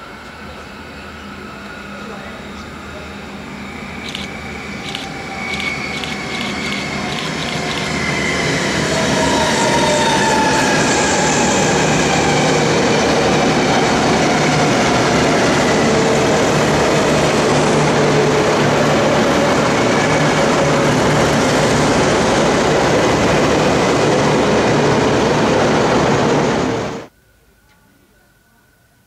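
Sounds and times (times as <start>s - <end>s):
diesel train passing: 0.0s - 27.1s.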